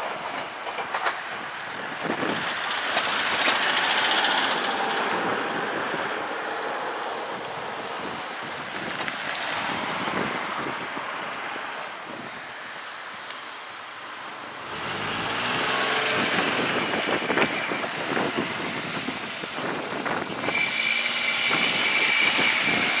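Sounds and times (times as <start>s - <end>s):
clatter of train wheels: 0.0s - 6.2s, 16.3s - 23.0s
electric train passing: 0.0s - 23.0s.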